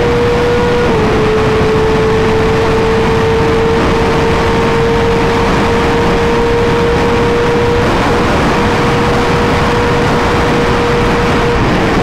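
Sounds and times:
motorcycle engine: 0:00.0 - 0:12.0
wind rush on microphone: 0:00.0 - 0:12.0.

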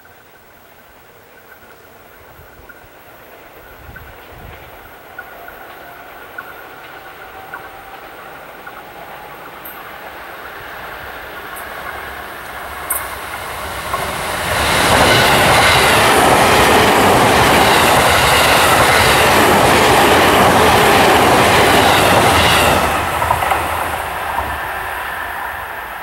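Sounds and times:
train wheels rumbling on rails: 0:01.3 - 0:26.0.

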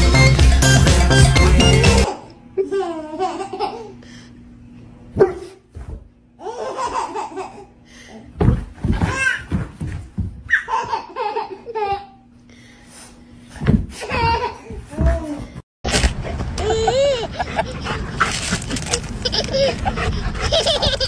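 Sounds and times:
baby laughing: 0:02.0 - 0:04.0, 0:06.4 - 0:07.8, 0:10.5 - 0:12.2, 0:16.4 - 0:21.0.

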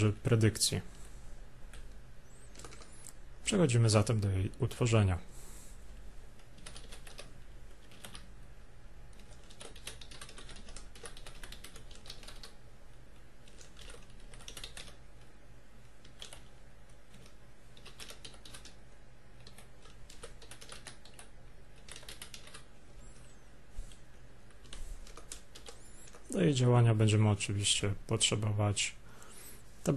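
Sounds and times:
steady low hum: 0:00.0 - 0:29.9
computer keyboard typing: 0:01.7 - 0:03.2, 0:06.4 - 0:08.3, 0:09.1 - 0:18.8, 0:19.4 - 0:23.3, 0:23.9 - 0:26.3.

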